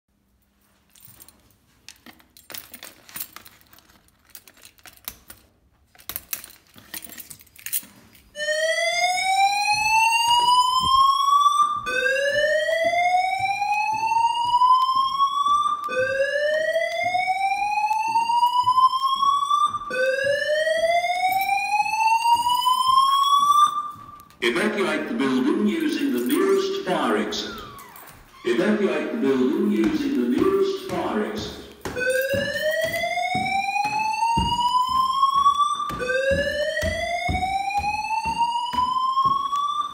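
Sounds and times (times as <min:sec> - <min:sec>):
rising whooping alarm tone: 0:08.4 - 0:24.1, 0:25.0 - 0:39.9.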